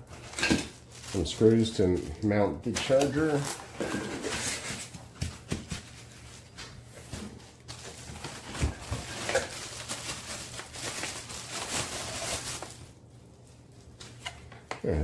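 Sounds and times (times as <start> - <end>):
plastic packaging rustling: 0.0 - 14.5
knocks of parts and cardboard: 3.9 - 6.0.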